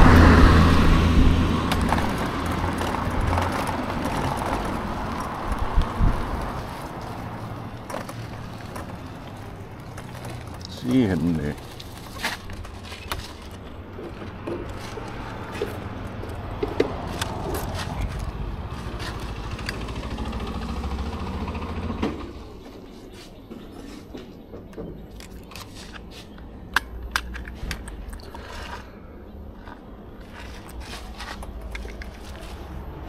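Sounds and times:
electric scooter road rumble: 0.0 - 33.0
clicks and rattles: 1.6 - 20.6, 29.6 - 32.7.

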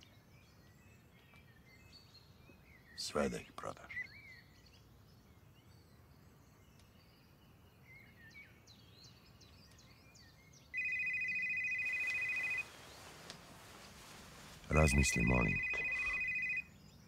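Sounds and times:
bird chirps: 0.0 - 13.4, 14.6 - 17.0
phone ringing: 10.8 - 12.7, 14.7 - 16.7.

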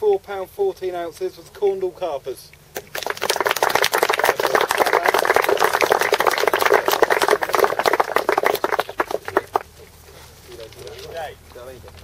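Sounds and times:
crowd clapping: 2.8 - 9.7.

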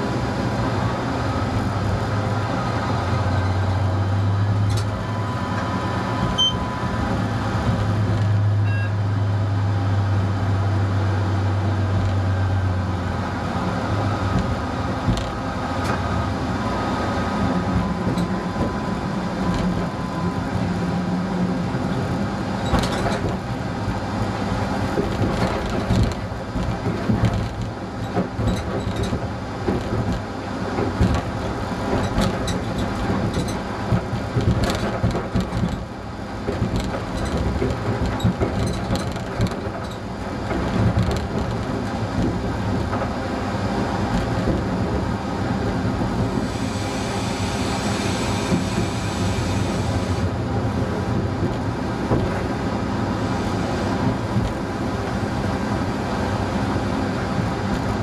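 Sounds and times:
diesel engine running: 0.0 - 58.0
train wheels clicking over joints: 22.6 - 52.8
hiss: 46.4 - 50.2.

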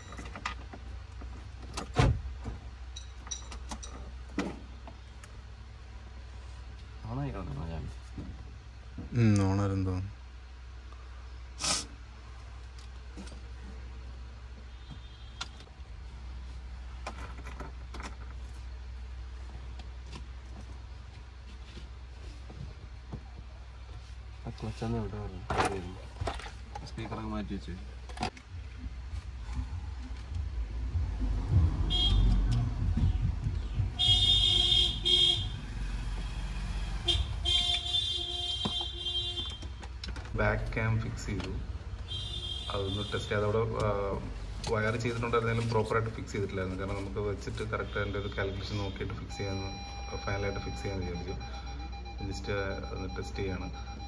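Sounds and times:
low steady rumble: 0.0 - 47.6
steady low hum: 0.0 - 54.0
vehicle horn blasts: 14.7 - 15.6, 31.9 - 32.5, 34.0 - 35.6, 37.0 - 39.8, 42.0 - 43.6, 47.8 - 49.1.

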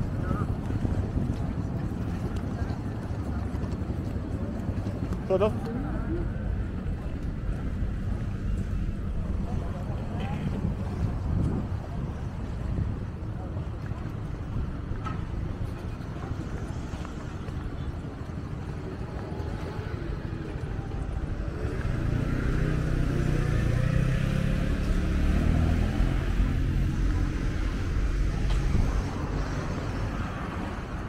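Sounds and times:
low outdoor rumble: 0.0 - 31.0
vehicle engine passing: 21.2 - 31.0.

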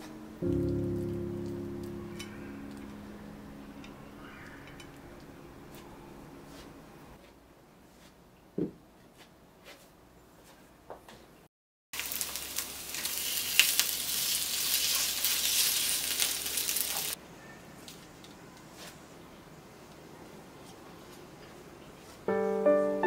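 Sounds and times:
pancakes sizzling in oil: 12.0 - 17.2.

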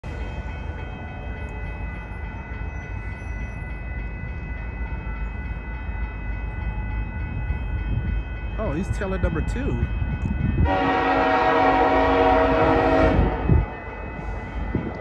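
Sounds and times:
diesel locomotive rumble: 0.0 - 15.0
high ringing tones: 0.4 - 11.8.

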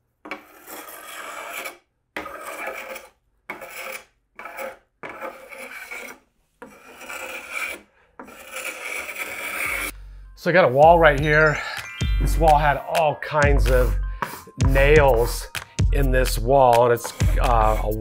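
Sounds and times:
paint scraper scraping a door: 0.3 - 9.9, 16.3 - 18.0.

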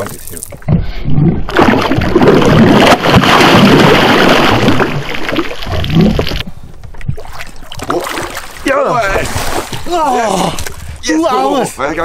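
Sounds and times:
fish thrashing and splashing: 1.5 - 6.4, 7.1 - 10.0.

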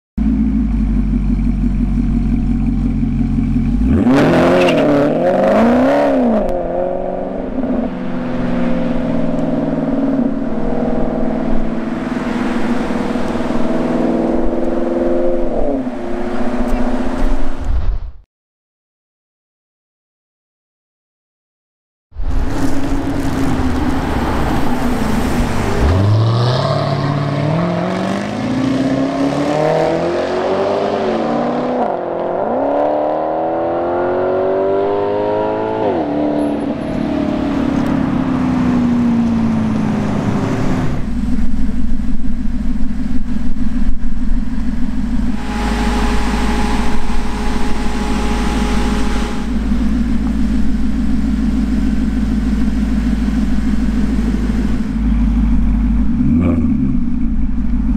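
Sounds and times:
engine idling with low burble: 0.2 - 4.0, 39.2 - 57.9
car engine accelerating hard: 0.2 - 17.7, 22.2 - 57.9.

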